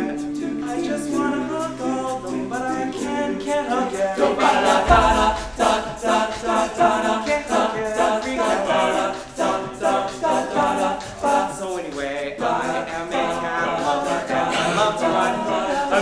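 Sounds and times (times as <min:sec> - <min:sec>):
male a cappella group singing: 0:00.0 - 0:16.0.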